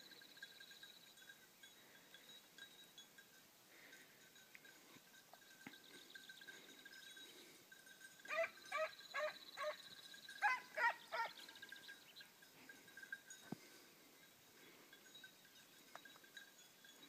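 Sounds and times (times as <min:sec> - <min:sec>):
hound baying in yelping barks: 0:08.3 - 0:11.5.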